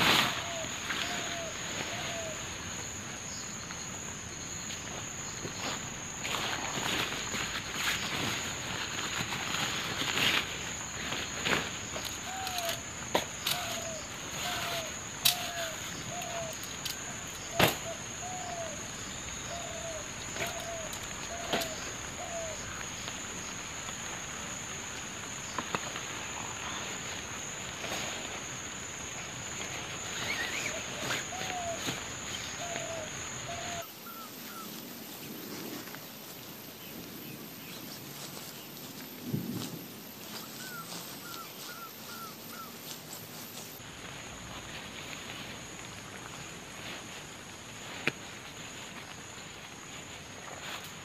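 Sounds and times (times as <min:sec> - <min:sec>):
high insect drone: 0:00.0 - 0:51.0
bird low call: 0:30.2 - 0:34.8, 0:40.4 - 0:42.8.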